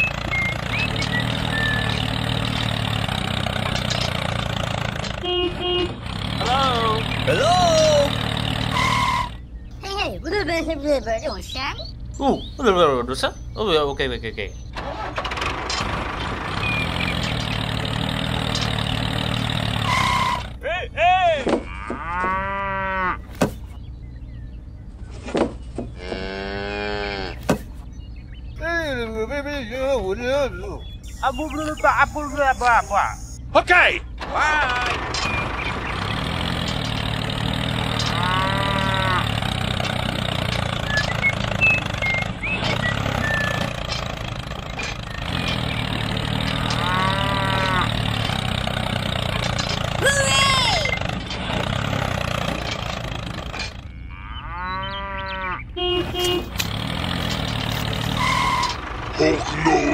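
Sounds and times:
tractor engine chugging: 0.0 - 9.9, 14.5 - 20.6, 30.0 - 54.0, 55.8 - 59.9
cow mooing: 21.6 - 23.3, 26.0 - 27.4, 37.4 - 39.6, 46.5 - 48.2, 53.8 - 56.3
rising and falling call: 30.8 - 33.4.

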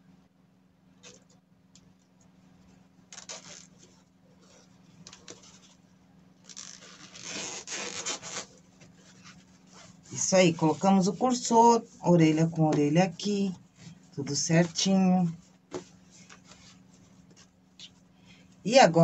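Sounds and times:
faint low hum: 0.0 - 19.0
cloth rustling: 2.2 - 18.6
zipper slider scraping: 3.1 - 5.8, 6.4 - 10.2.

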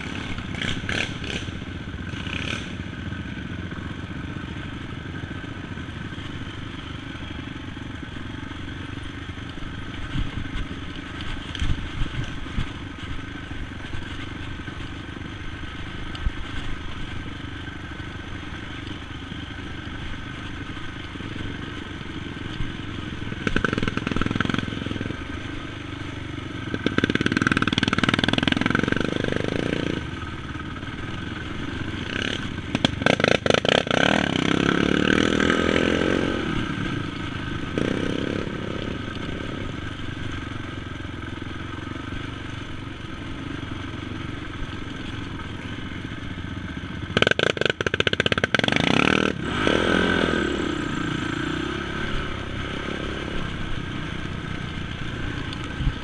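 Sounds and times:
quad bike engine revving: 0.0 - 6.9, 20.3 - 42.5, 43.2 - 56.0.

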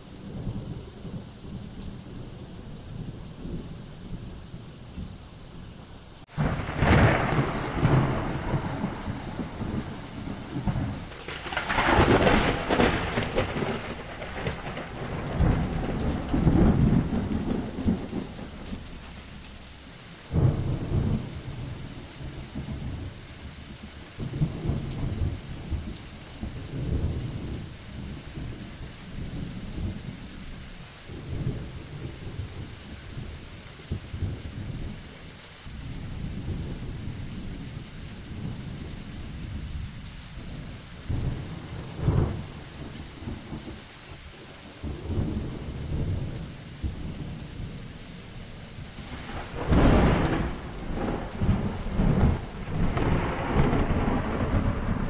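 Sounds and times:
heavy rain: 0.0 - 55.0
thunder crack: 6.3 - 19.4, 49.0 - 55.0
rolling thunder: 6.3 - 35.1, 35.8 - 55.0.

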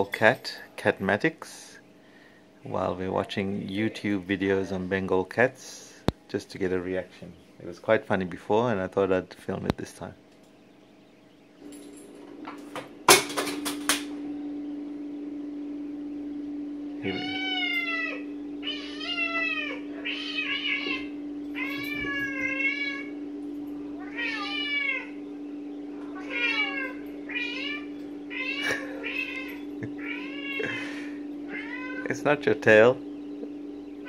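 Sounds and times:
steady hum: 0.0 - 34.0
cats meowing through speakers: 17.0 - 23.2, 24.0 - 25.2, 26.0 - 32.2.

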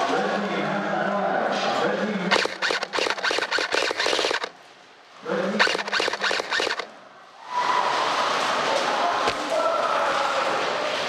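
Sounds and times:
airsoft gun rapid firing: 2.3 - 4.6, 5.6 - 7.0.

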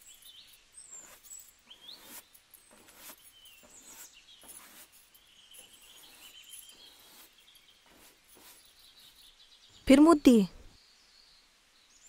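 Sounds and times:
hand broom sweeping floor: 0.9 - 9.2.

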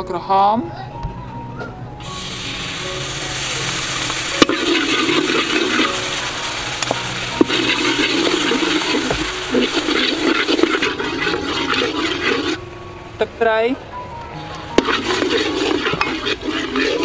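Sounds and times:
sauce sizzling in a wok: 2.0 - 12.6, 14.7 - 17.0.

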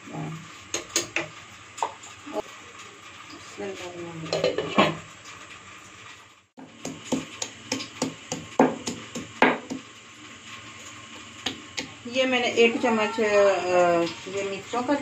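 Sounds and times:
pestle pounding in stone mortar: 6.6 - 9.9.

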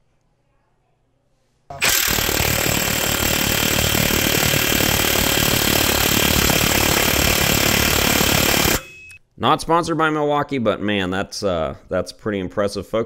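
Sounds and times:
impact wrench hammering: 1.7 - 9.2.

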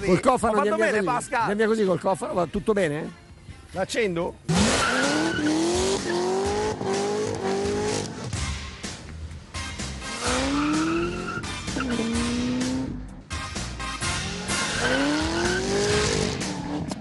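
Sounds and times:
music: 0.0 - 17.0
tyres screeching: 4.5 - 7.8, 10.0 - 13.0, 14.2 - 16.7
car engine revving hard: 4.5 - 8.3, 10.0 - 13.0, 14.2 - 17.0.

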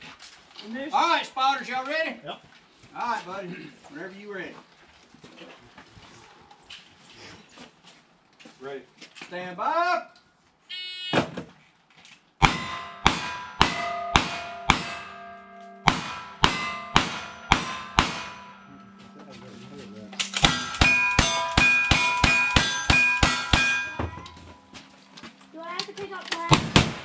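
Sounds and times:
rifle shots: 12.4 - 18.7, 20.2 - 24.0, 26.5 - 27.0
revolver shots: 12.4 - 18.8
steel plate target ringing: 12.4 - 25.1.

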